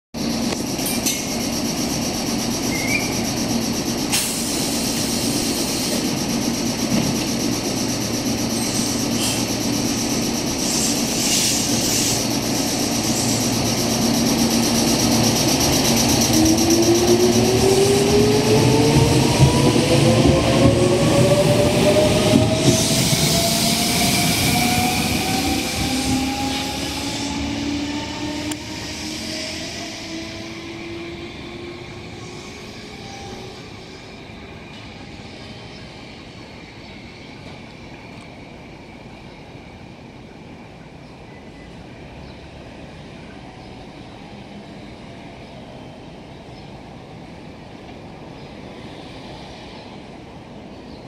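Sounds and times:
electric train humming: 0.2s - 41.0s
traction motor whine rising: 12.4s - 33.4s.

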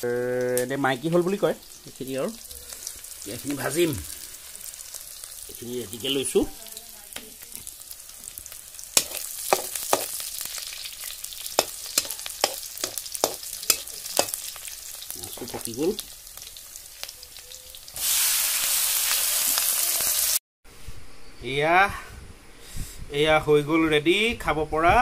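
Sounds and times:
food sizzling in oil: 0.0s - 20.4s
metal spatula scraping a wok: 9.0s - 10.6s.

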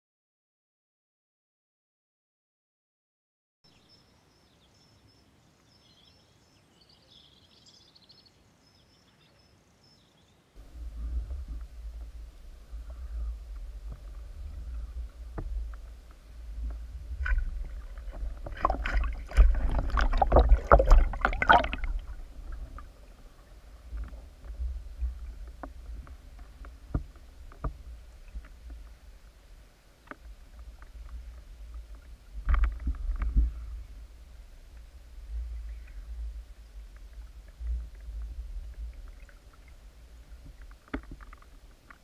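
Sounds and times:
muffled underwater rumble: 10.6s - 42.0s.

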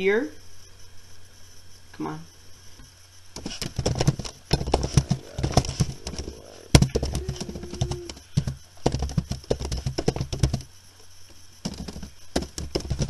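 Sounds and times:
keyboard and mouse clicking: 4.8s - 10.7s.

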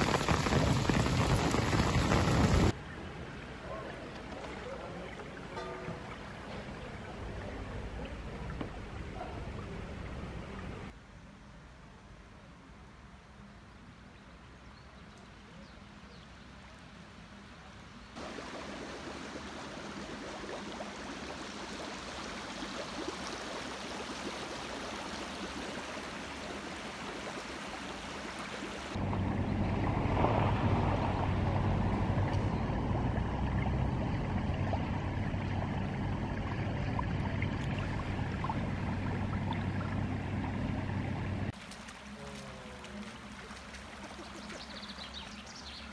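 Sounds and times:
floodwater rushing: 0.0s - 11.0s, 18.2s - 45.9s
steady low hum: 29.0s - 41.6s.

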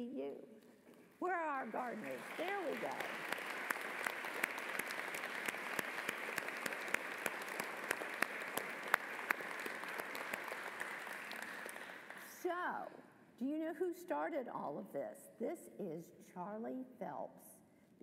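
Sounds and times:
crowd applauding: 1.7s - 12.3s.

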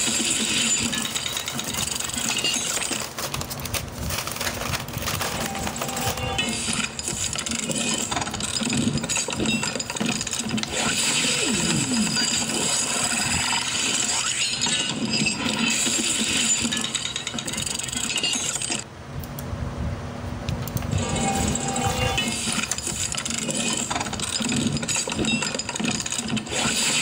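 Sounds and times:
paper leaflet rustling and crackling: 1.2s - 6.7s.

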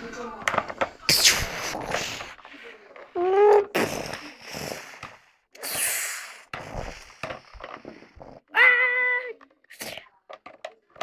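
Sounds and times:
toys clicking and knocking: 0.1s - 3.2s, 6.5s - 11.0s
child making breathy hiss: 5.6s - 7.0s.

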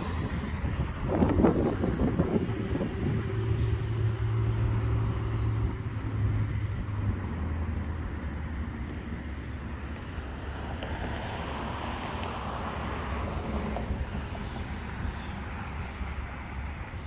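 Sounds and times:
vehicle engine humming: 0.0s - 17.0s.

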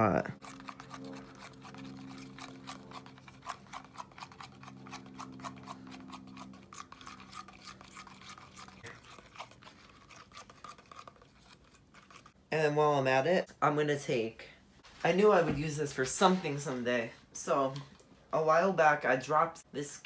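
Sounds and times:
straw stirring in metal cup: 0.4s - 12.4s.

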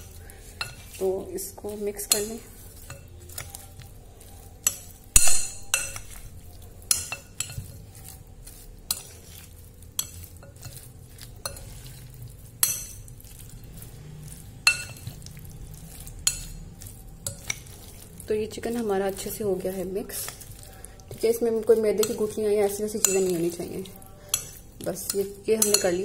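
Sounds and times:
spoon clinking against glass bowl: 4.6s - 7.7s, 14.6s - 15.2s, 24.3s - 26.0s.

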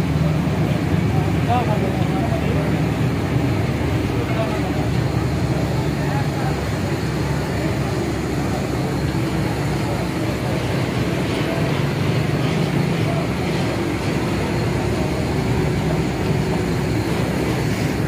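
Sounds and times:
steady rumble and hiss: 0.0s - 18.0s.

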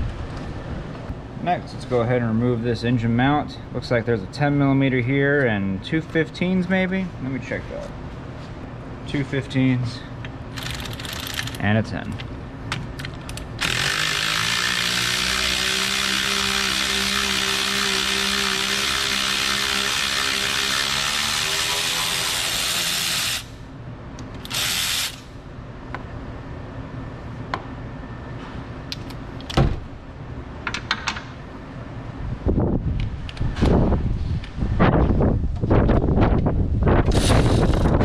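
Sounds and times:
cordless power tool running: 13.6s - 23.5s, 24.4s - 25.2s.

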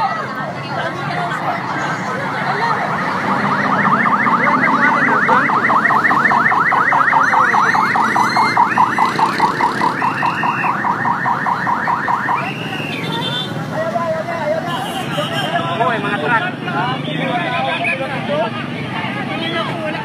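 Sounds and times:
street traffic: 0.0s - 20.0s
electronic siren whooping: 1.7s - 13.2s.

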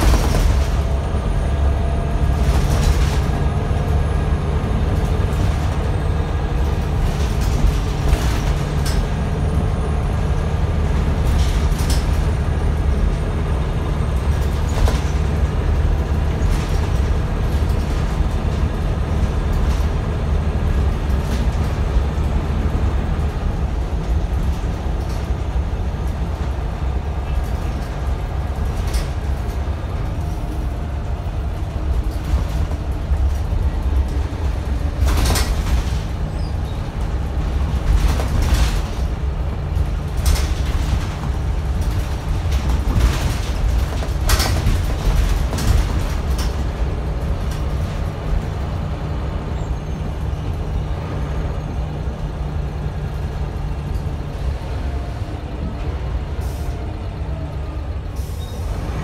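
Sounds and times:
bus diesel engine drone: 0.0s - 59.0s.

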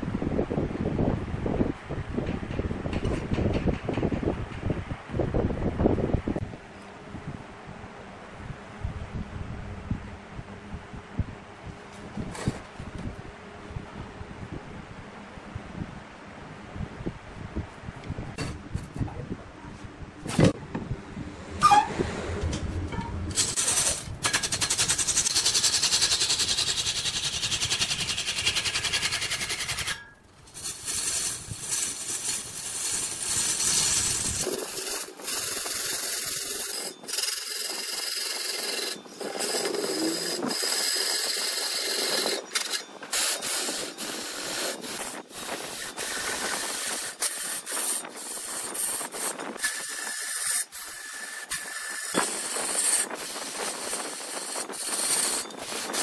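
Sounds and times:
low rumble: 18.3s - 23.8s
hand tool scraping wood on lathe: 23.3s - 56.0s.

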